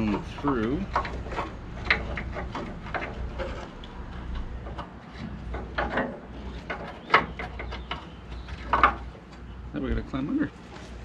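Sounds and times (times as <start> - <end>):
wiring harness rustling and scraping: 0.0 - 11.0.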